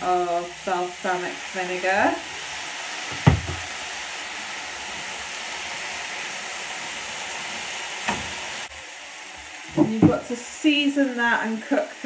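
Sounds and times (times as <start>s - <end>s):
vegetables sizzling in a pan: 0.0s - 12.0s
sharp knock: 3.1s - 3.6s.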